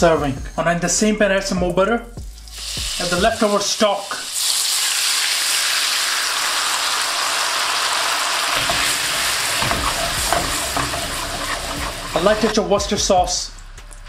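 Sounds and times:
liquid sizzling in a hot pan: 0:02.4 - 0:12.6.

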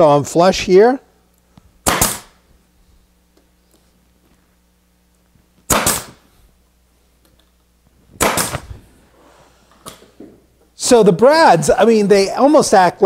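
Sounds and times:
brad nailer firing into plywood: 0:01.8 - 0:02.4, 0:05.7 - 0:06.2, 0:08.2 - 0:08.7.

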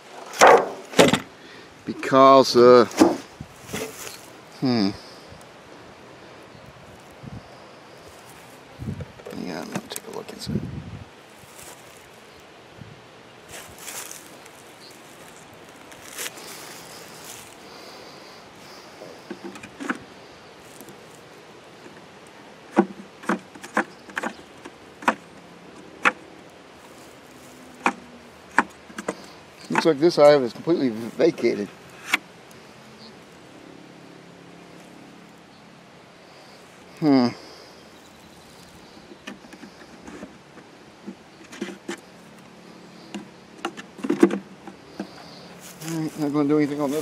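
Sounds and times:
wooden beehive frames knocking: 0:00.3 - 0:01.3, 0:02.9 - 0:04.1, 0:22.7 - 0:26.2.

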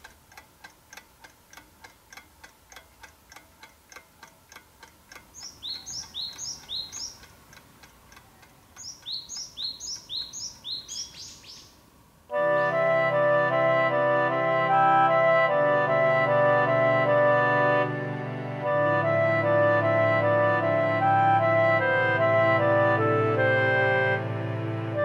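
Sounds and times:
clock ticking rapidly: 0:00.0 - 0:11.2
small bird chirping: 0:05.1 - 0:11.9
clarinet music: 0:12.3 - 0:25.0.

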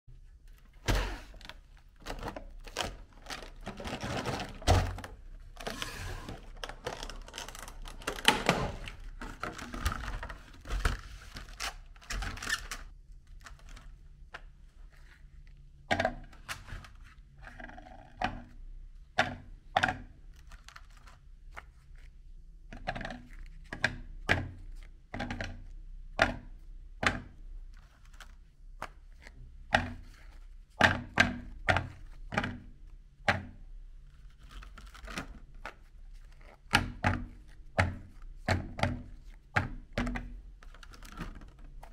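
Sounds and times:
plastic tray crinkling and clicking: 0:00.5 - 0:14.6, 0:19.2 - 0:22.1, 0:22.7 - 0:33.5, 0:34.1 - 0:41.9
cookies clicking and tapping: 0:18.0 - 0:41.9.

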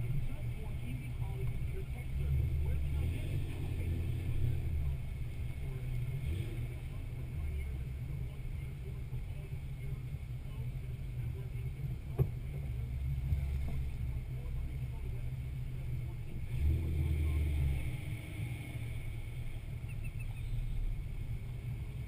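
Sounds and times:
engine low rumble: 0:00.0 - 0:22.0.

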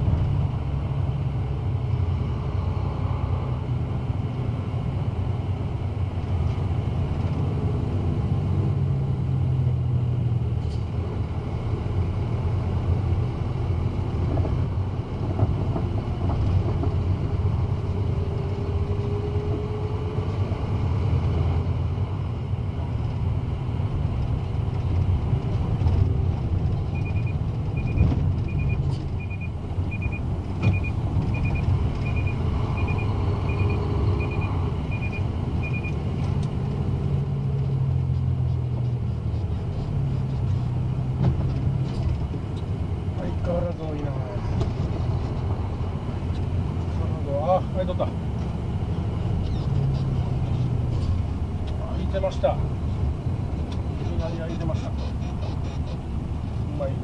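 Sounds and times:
truck engine and road noise: 0:00.0 - 0:57.0
short electronic beeps: 0:26.9 - 0:36.0.

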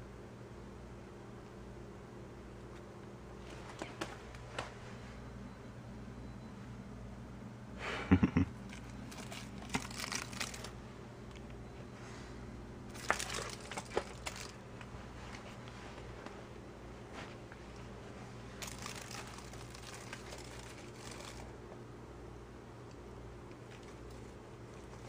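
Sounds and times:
dragonfly wings whirring: 0:08.7 - 0:10.8, 0:12.9 - 0:14.6, 0:18.6 - 0:21.5.

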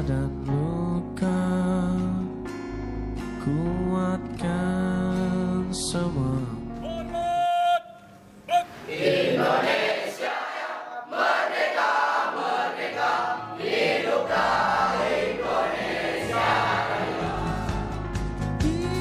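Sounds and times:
choir singing: 0:08.6 - 0:18.1.

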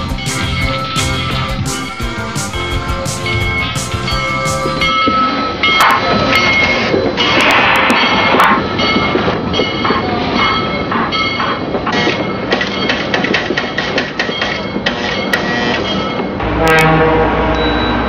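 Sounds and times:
model train rattling on metal track: 0:05.3 - 0:15.9.

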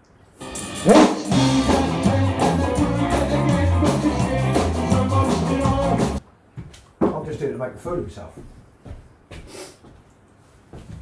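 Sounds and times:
bass line: 0:00.4 - 0:06.2
guitar: 0:00.4 - 0:06.2
live rock band: 0:00.4 - 0:06.2.

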